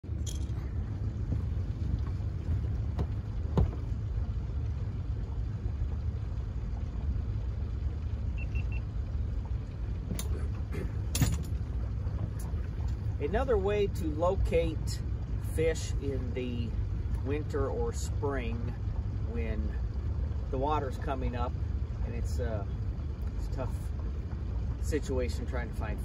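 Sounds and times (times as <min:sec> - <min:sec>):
gear knocking in boat: 0:00.0 - 0:04.2, 0:10.0 - 0:13.2
boat low rumble: 0:00.0 - 0:26.0.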